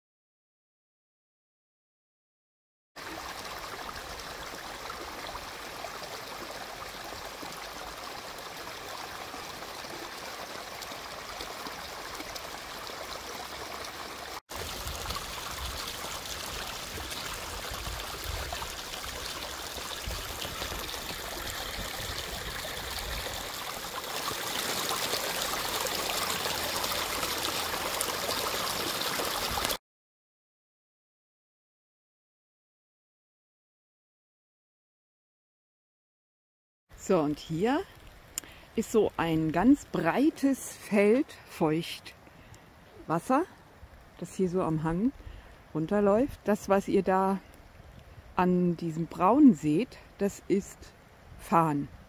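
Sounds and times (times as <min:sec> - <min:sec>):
brook rippling over stones: 0:03.0 - 0:29.8.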